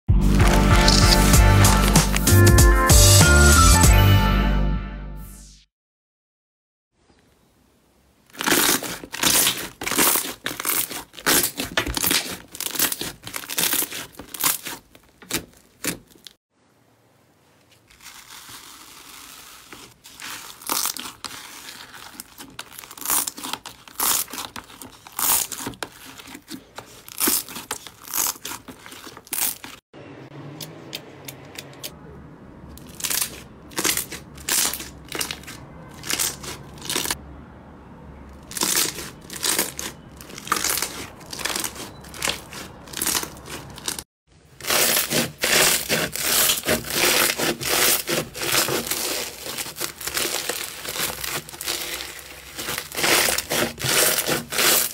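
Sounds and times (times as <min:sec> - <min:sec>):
foam-bead slime crunching: 0:00.2 - 0:02.5, 0:08.3 - 0:16.4, 0:17.6 - 0:29.8, 0:32.8 - 0:37.2, 0:38.3 - 0:54.9
sticky slime popping: 0:08.3 - 0:16.3.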